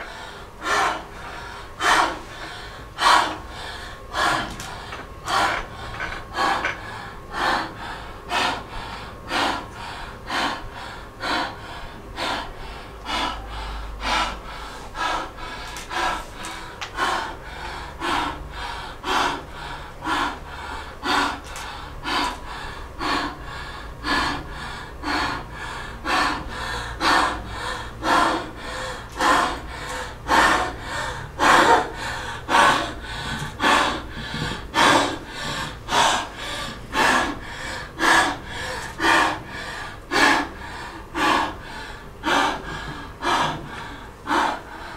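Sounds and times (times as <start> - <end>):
woman breathing heavily: 0.0 - 44.9.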